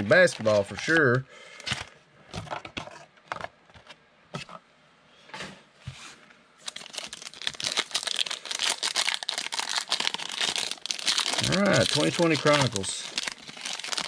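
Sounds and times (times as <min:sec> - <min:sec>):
plastic wrapper crinkling: 0:06.6 - 0:14.0.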